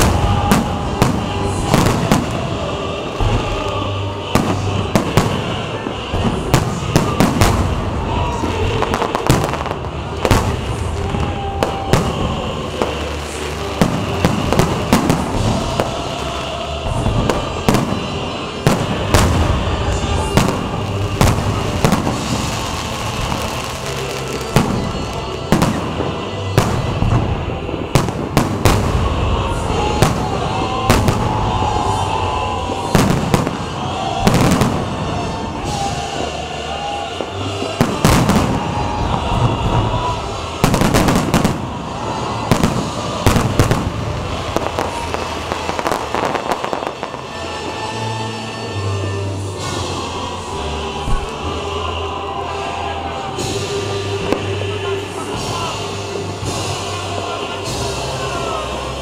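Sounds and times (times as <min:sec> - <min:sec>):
fireworks bursting: 0:00.0 - 0:59.0.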